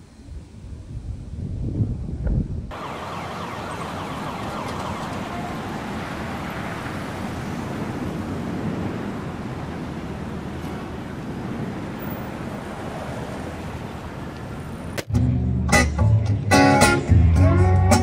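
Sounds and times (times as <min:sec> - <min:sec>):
wind buffeting microphone: 0:00.0 - 0:15.0
steady rushing noise: 0:02.6 - 0:15.1.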